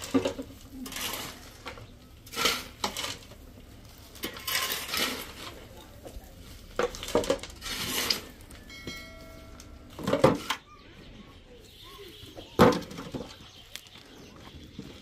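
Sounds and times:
household objects clattering: 0.0 - 9.1, 9.9 - 10.6
steady ringing tone: 8.5 - 10.0.

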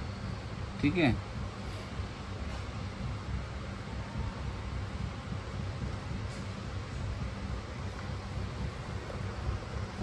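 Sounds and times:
low rumble with faint hiss: 0.0 - 10.0.

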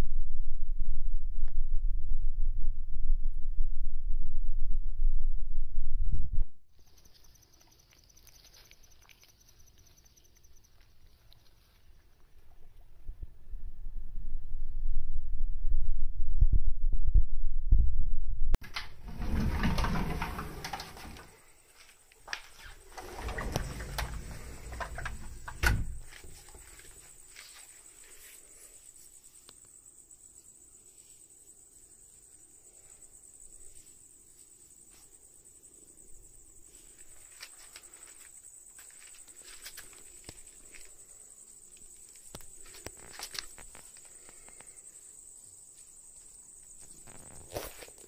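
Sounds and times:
crickets chirring: 6.7 - 12.9, 18.7 - 48.0
rustling and shuffling: 18.6 - 29.5, 36.6 - 48.0.

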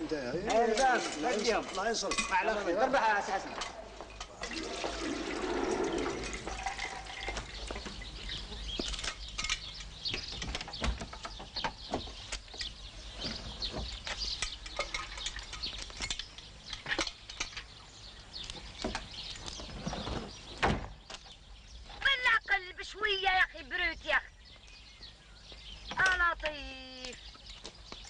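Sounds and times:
milk pouring into metal pot: 4.4 - 7.5
light clinks and knocks: 8.7 - 17.8.

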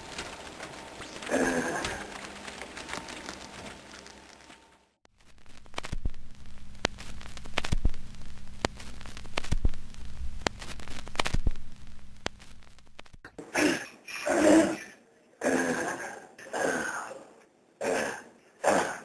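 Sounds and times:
low hum: 0.0 - 13.3
crackling static: 0.0 - 13.4
sharp clicks: 5.4 - 13.3.

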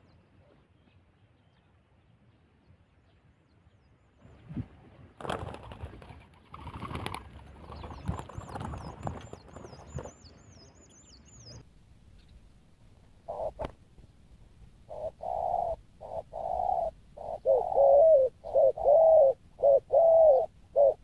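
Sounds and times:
dove wings flapping: 5.2 - 10.2.

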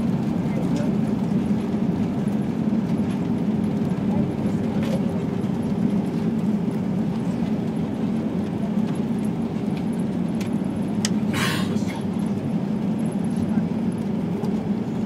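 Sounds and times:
wheels running on runway: 0.0 - 11.4
aircraft engine rumble: 0.0 - 15.0.

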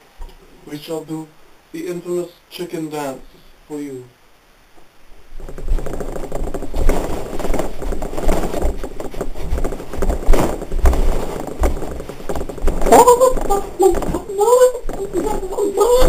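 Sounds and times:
fabric rustling on microphone: 5.0 - 16.0.

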